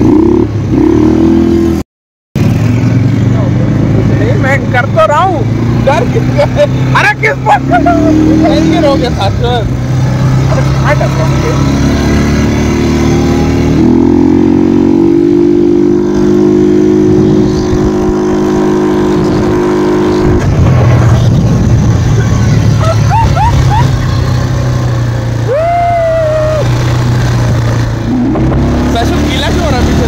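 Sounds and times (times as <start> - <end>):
off-road vehicle engine running: 0.0 - 1.8, 2.4 - 30.0
rising-and-falling cries: 22.1 - 24.5, 25.4 - 26.9.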